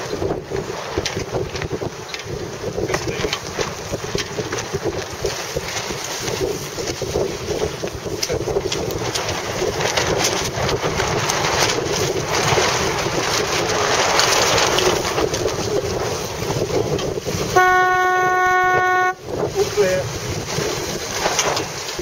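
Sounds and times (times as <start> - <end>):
choppy water: 0.0 - 22.0
wind buffeting microphone: 0.0 - 22.0
long horn blast: 17.5 - 19.3.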